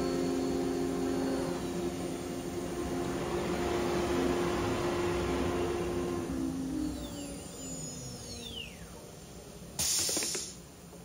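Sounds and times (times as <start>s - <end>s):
router machine humming: 0.0s - 9.2s.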